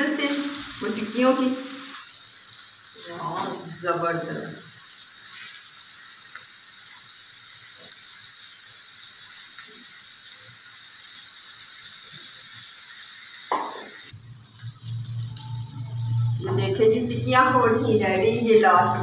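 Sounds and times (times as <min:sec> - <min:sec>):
food sizzling on griddle: 0:00.0 - 0:19.0
low hum: 0:14.2 - 0:19.0.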